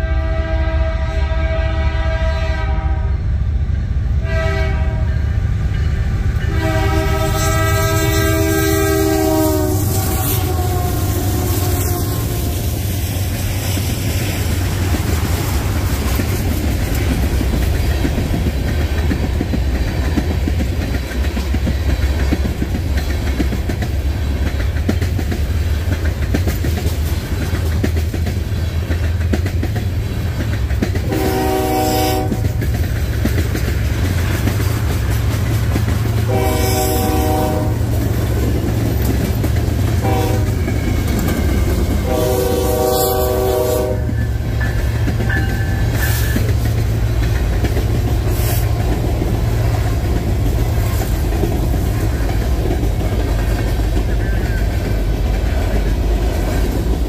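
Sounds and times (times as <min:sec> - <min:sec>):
locomotive horn blasts: 0:00.0 - 0:03.2, 0:04.2 - 0:05.3, 0:06.4 - 0:12.6, 0:31.0 - 0:32.6, 0:36.2 - 0:38.0, 0:40.0 - 0:41.0, 0:42.0 - 0:46.5
freight train rumbling past: 0:00.0 - 0:57.0
wheels clicking over rail joints: 0:07.2 - 0:57.0.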